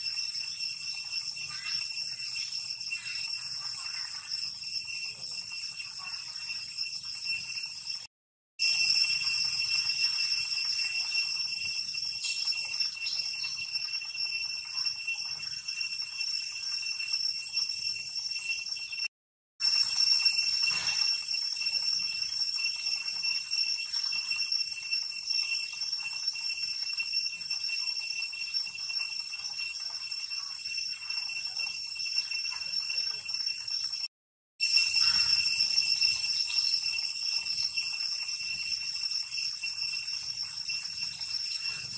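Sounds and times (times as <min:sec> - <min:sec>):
cicadas droning: 0:00.0 - 0:08.0, 0:08.6 - 0:17.1, 0:34.6 - 0:41.9.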